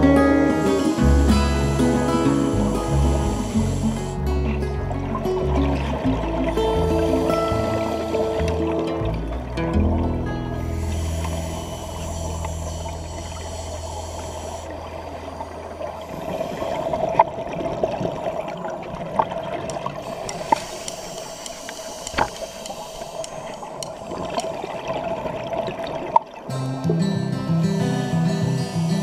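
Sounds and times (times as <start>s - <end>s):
scuba regulator bubbles: 0.0s - 29.0s
sharp clicks: 19.6s - 24.6s.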